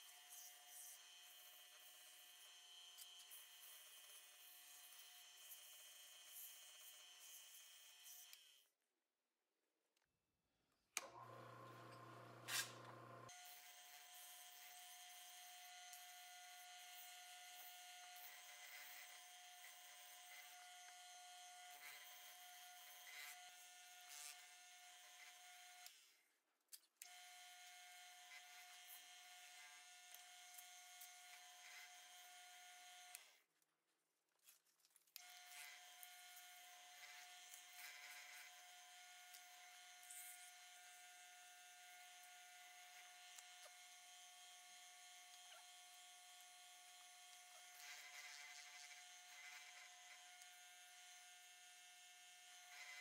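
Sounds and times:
faint lathe motor whine: 0:11.0 - 0:25.9, 0:27.1 - 0:33.3, 0:35.2 - 0:53.0.

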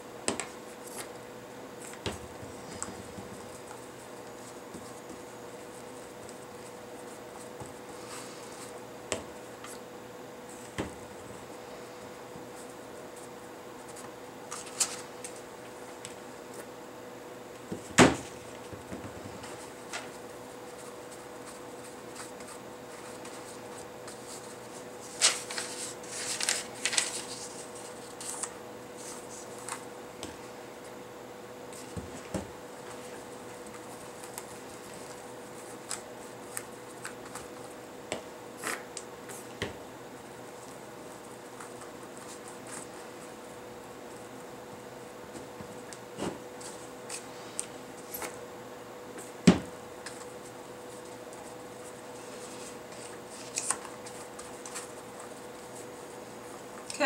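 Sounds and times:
faint steady hum: 0:00.0 - 0:57.0
paper rustling and crinkling: 0:12.6 - 0:16.7, 0:19.3 - 0:29.9, 0:50.0 - 0:57.0.

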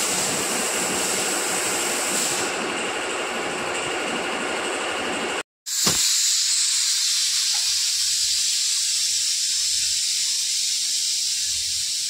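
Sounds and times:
high-pitched pressure venting hiss: 0:05.7 - 0:12.0.

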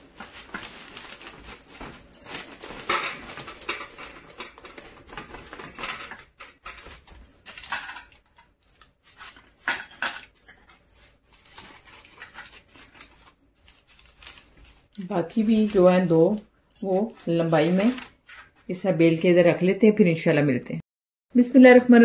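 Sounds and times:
wax paper rustling: 0:00.0 - 0:18.8.

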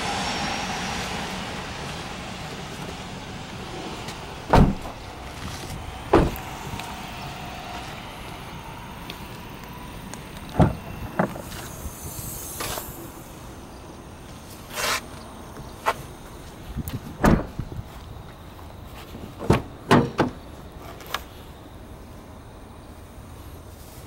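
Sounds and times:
car door clicks and thuds: 0:04.5 - 0:05.1, 0:06.1 - 0:06.5, 0:10.5 - 0:11.6, 0:17.0 - 0:17.7, 0:19.4 - 0:20.4.

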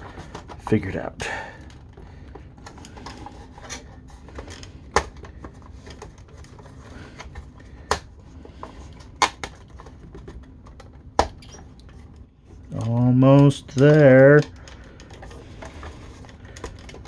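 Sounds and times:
plastic toy parts clicking: 0:12.7 - 0:15.4.

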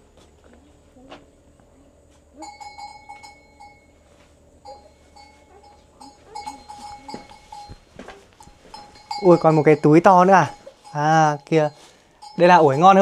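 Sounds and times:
livestock bell clanking: 0:02.4 - 0:04.0, 0:04.6 - 0:13.0.

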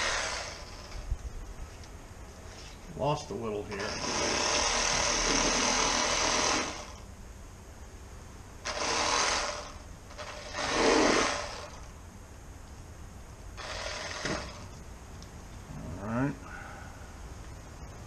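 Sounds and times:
reciprocating saw running: 0:00.0 - 0:01.0, 0:03.7 - 0:07.0, 0:08.6 - 0:12.0, 0:13.6 - 0:14.8.

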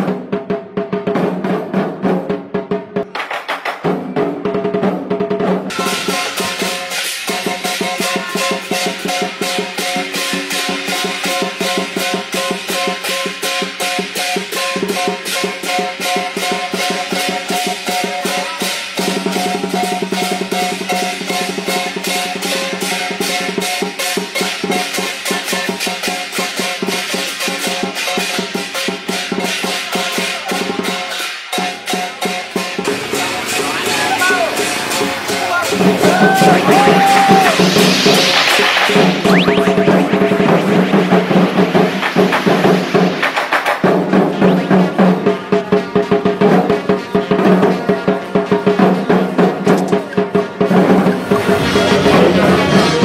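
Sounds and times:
music with fast drumming: 0:00.0 - 0:53.0
hand cymbals clashing: 0:05.7 - 0:39.0
drum beating fast: 0:34.1 - 0:53.0.

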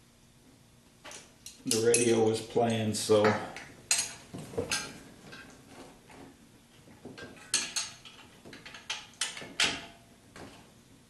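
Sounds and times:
wrench clinking on metal bolt: 0:01.4 - 0:02.2.

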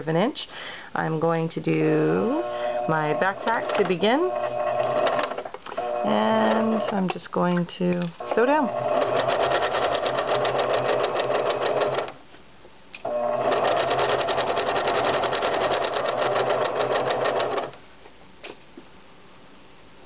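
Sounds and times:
electric sewing machine stitching: 0:02.2 - 0:07.0, 0:08.2 - 0:12.2, 0:13.0 - 0:17.8.

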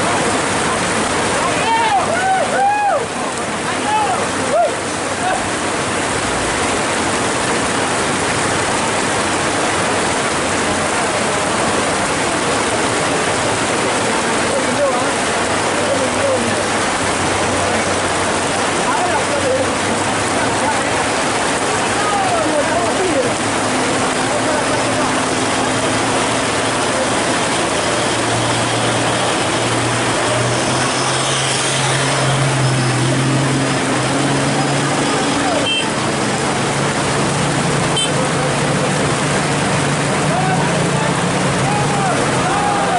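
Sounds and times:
diesel truck engine: 0:00.0 - 0:42.9
floodwater running over road: 0:00.0 - 0:42.9
heavy rain pouring: 0:00.0 - 0:42.9.

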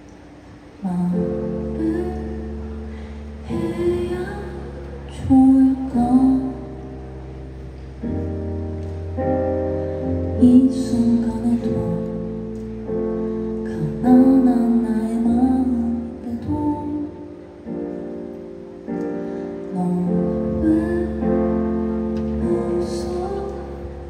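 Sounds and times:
keyboard chords: 0:00.0 - 0:24.0
woman singing: 0:00.8 - 0:06.9, 0:10.3 - 0:12.5, 0:13.6 - 0:17.5, 0:19.7 - 0:24.0.

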